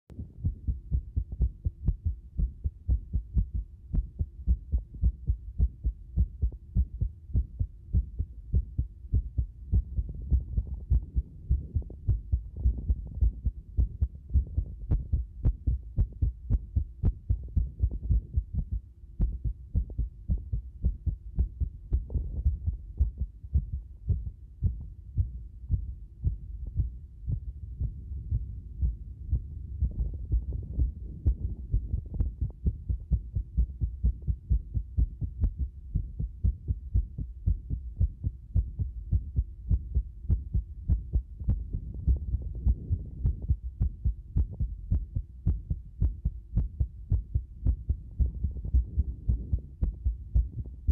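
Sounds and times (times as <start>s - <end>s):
faint steady hum: 0.1s - 50.9s
heartbeat thuds: 0.1s - 50.9s.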